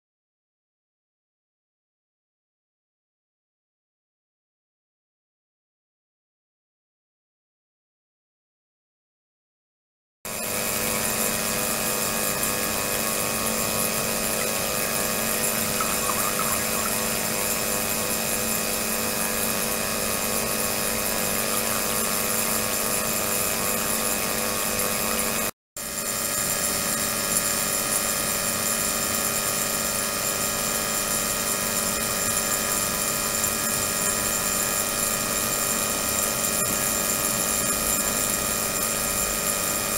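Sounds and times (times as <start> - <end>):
fixed ultrasonic tones: 10.3 - 19.5
hiss of cavitating water: 10.4 - 22.7.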